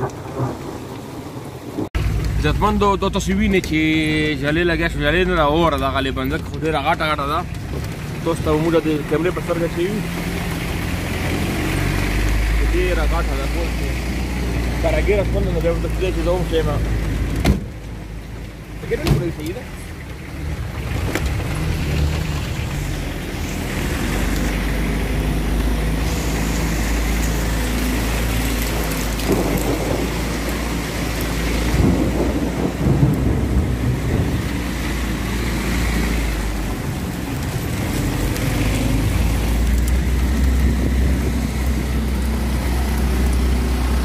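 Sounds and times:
car engine rumble: 0:00.0 - 0:44.0
tyres hissing on wet road: 0:00.0 - 0:44.0
car knocks and bumps: 0:17.3 - 0:17.8, 0:19.0 - 0:19.6.

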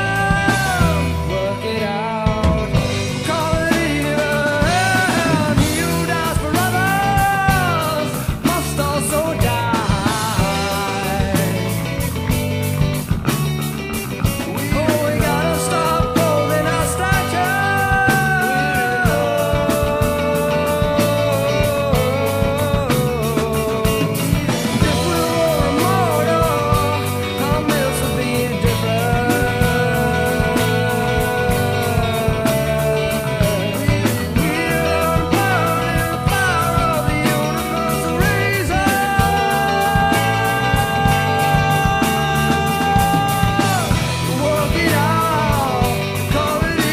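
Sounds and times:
person singing: 0:00.0 - 0:46.9
rock band playing: 0:00.0 - 0:46.9.

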